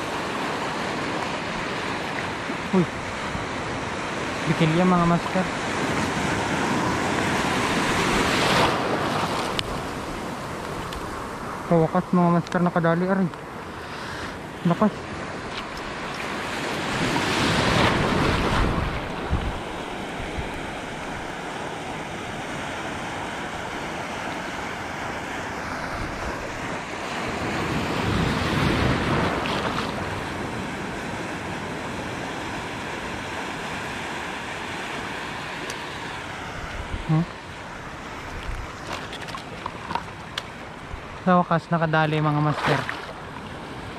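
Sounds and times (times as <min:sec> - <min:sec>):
surf washing over reef: 0:00.0 - 0:43.9
wind buffeting microphone: 0:15.4 - 0:22.7, 0:36.5 - 0:41.2.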